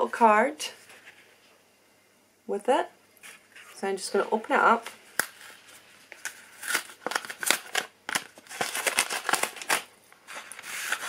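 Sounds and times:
packaging rustling and crinkling: 0:04.8 - 0:11.0.

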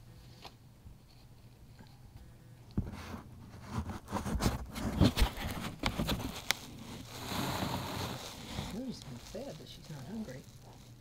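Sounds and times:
puppy rustling and scratching paper: 0:02.9 - 0:11.0.

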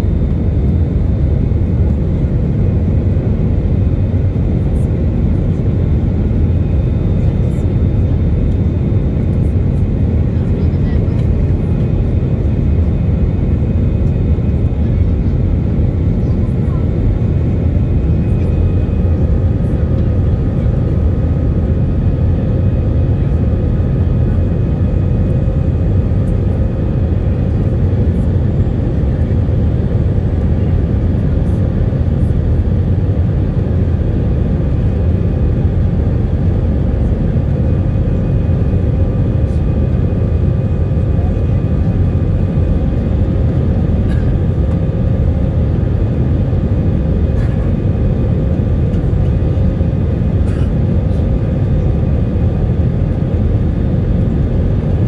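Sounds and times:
jet engine low rumble: 0:00.0 - 0:55.0.

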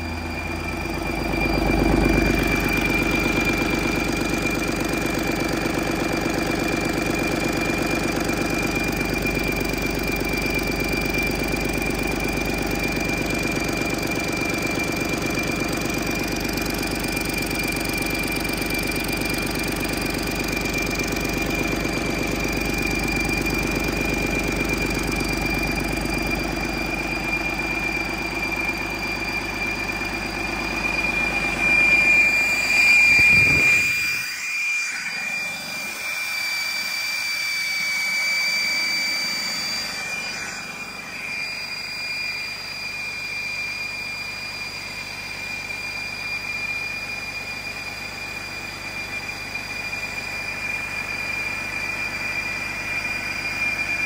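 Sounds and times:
diesel engine running: 0:00.0 - 0:34.5
high-pitched whine: 0:00.0 - 0:54.0.

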